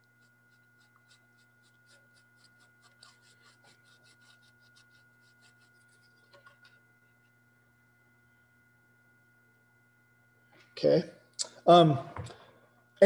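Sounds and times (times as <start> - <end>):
paintbrush scratchy brushing: 0.0 - 7.4.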